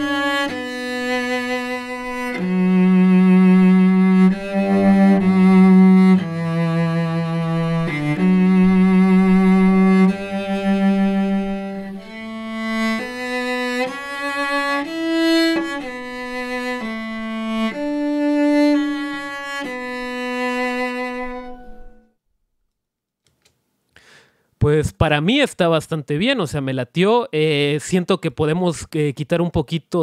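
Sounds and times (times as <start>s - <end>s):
cello playing bowed notes: 0.0s - 22.1s.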